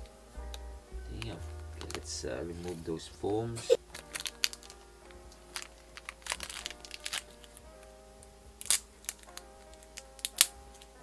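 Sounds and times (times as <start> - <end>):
background music with held notes: 0.0 - 11.0
foam packing crinkling and tearing: 5.6 - 7.3.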